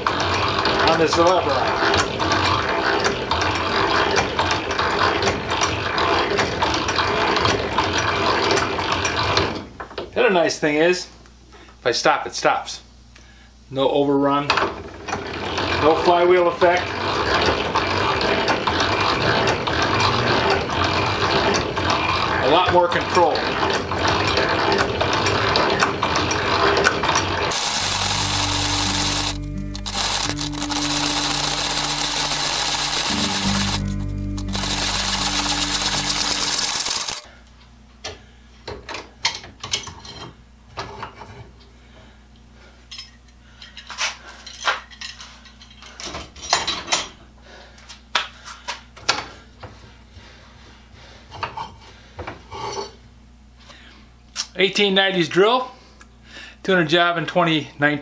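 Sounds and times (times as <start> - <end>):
background music: 27.5 - 37.2
hand drill gears and ratchet clicking: 27.5 - 37.3.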